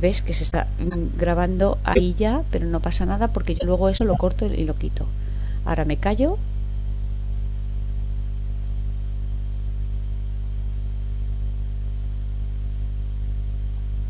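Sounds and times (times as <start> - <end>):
electrical hum and buzz: 0.0 - 10.0.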